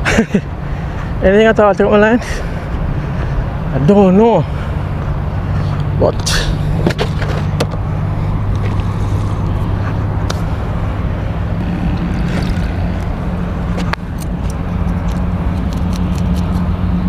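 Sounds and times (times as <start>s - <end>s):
low engine hum: 0.0s - 17.0s.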